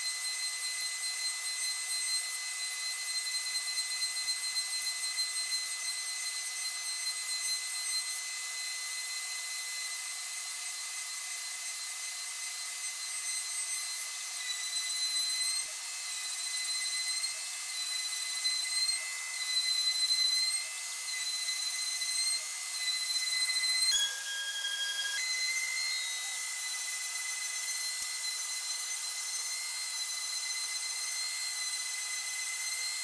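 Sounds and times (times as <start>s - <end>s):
router spindle whistling: 0.0s - 33.0s
dust vacuum running: 22.8s - 28.9s.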